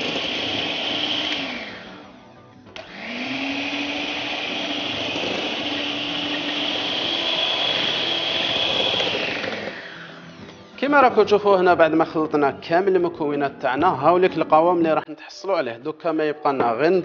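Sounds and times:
electric hand mixer whining: 0:00.0 - 0:10.6.

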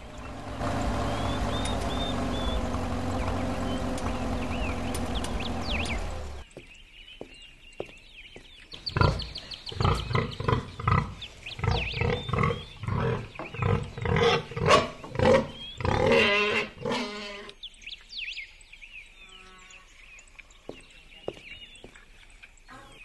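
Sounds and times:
birds chirping faintly: 0:00.0 - 0:23.0
pig grunting: 0:08.9 - 0:17.5.

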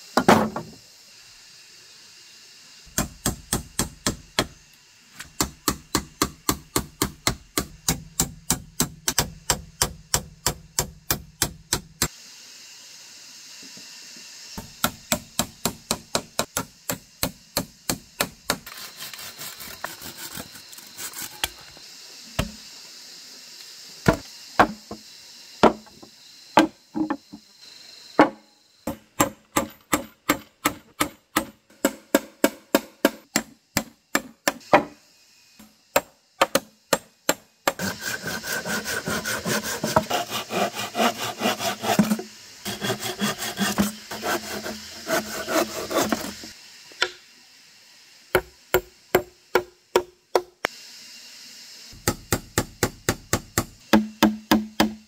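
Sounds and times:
hammering on wood: 0:24.1 - 0:25.0, 0:25.6 - 0:25.9, 0:52.0 - 0:55.0.

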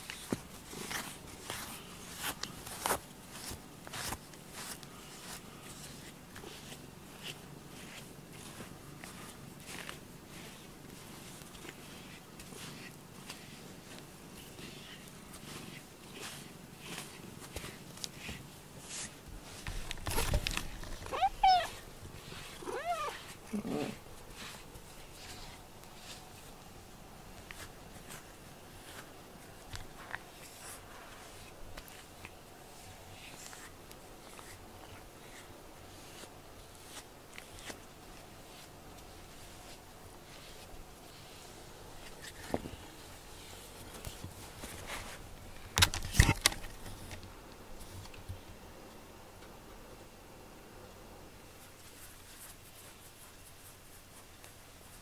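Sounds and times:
brush stroking cat fur: 0:00.0 - 0:45.3, 0:51.5 - 0:55.0
rustling: 0:00.0 - 0:48.6, 0:51.4 - 0:55.0
cat meowing: 0:21.1 - 0:21.8, 0:22.6 - 0:24.0.

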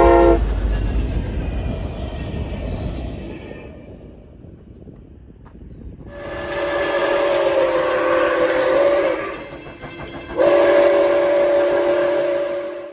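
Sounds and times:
steam locomotive whistle: 0:00.0 - 0:00.5, 0:06.1 - 0:12.9.

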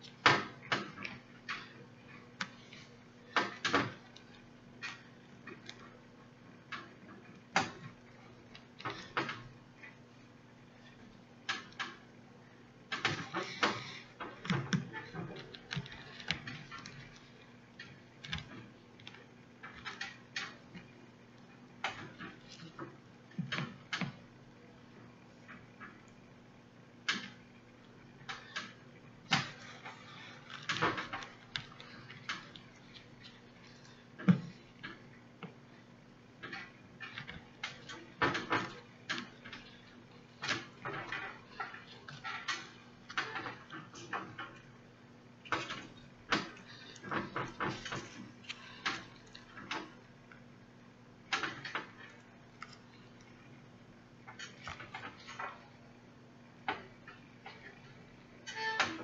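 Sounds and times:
faint steady hum: 0:00.0 - 0:59.0.

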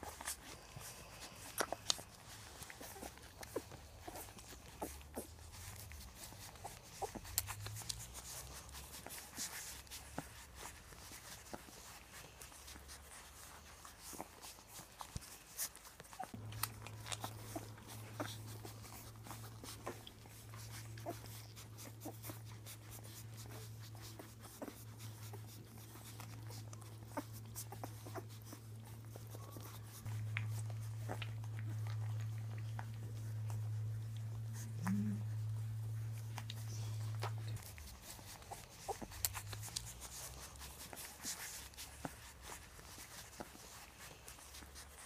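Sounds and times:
puppies squeaking: 0:00.0 - 0:45.0
puppies sucking and shuffling: 0:00.0 - 0:45.0
steady low hum: 0:16.3 - 0:45.0.

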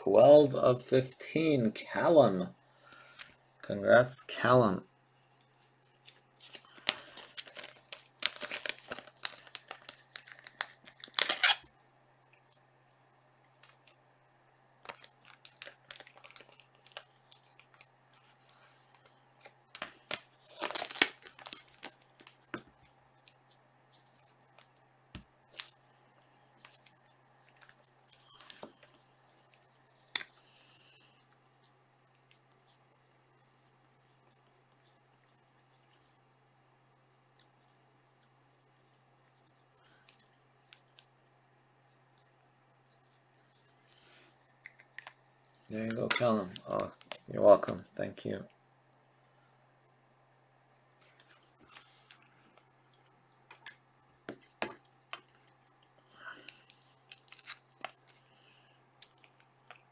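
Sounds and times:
plastic and paper crinkling: 0:05.2 - 0:11.7, 0:14.8 - 0:36.2, 0:51.0 - 0:59.9.

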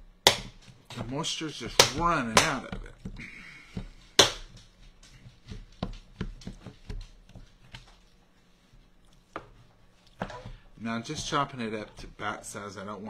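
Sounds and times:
knife chopping on wooden board: 0:00.2 - 0:01.1, 0:01.7 - 0:03.2, 0:03.8 - 0:04.6.

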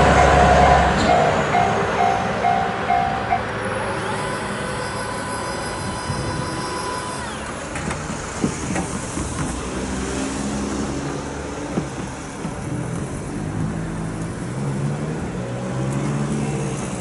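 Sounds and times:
diesel locomotive engine running: 0:00.0 - 0:17.0
wheels knocking on track: 0:07.4 - 0:14.6.

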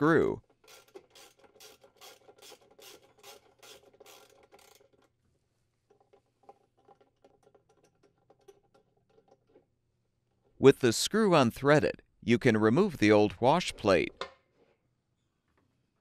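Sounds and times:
ratchet rasping clicks: 0:00.6 - 0:05.1.

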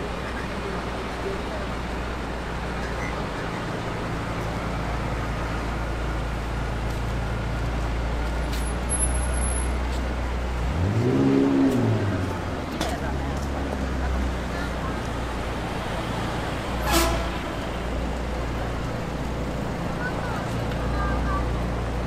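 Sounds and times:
traffic engine hum: 0:00.0 - 0:22.0
vehicle accelerating away: 0:10.4 - 0:14.4.

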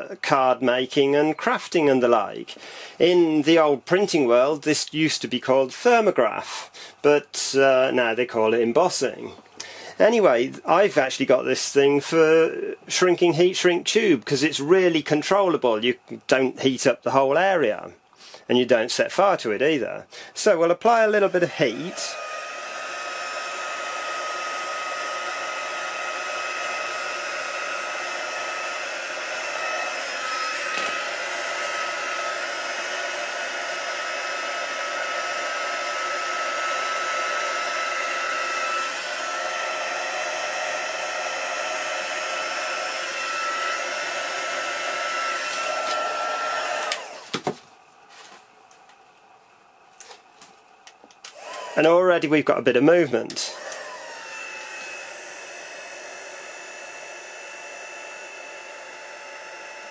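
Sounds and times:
heat gun blowing with high whine: 0:20.2 - 0:47.6, 0:50.0 - 0:59.9.

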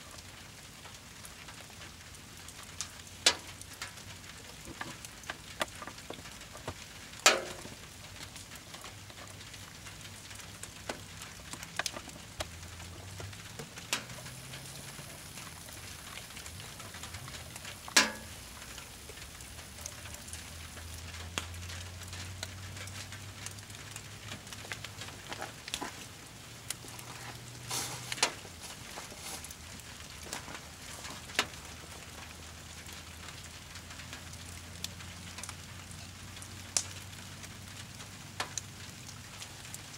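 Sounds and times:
campfire crackling and hissing: 0:00.0 - 0:39.9
loud fire pops: 0:02.3 - 0:22.5.

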